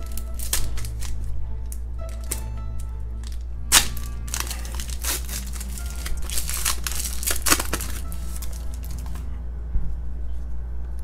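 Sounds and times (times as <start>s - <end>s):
foil wrapper tearing and crinkling: 0.0s - 1.3s, 3.2s - 9.3s.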